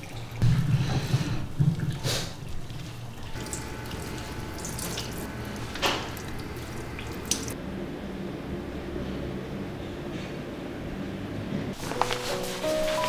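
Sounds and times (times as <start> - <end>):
running water at sink: 0.0 - 7.6
short water splashes: 2.6 - 7.6.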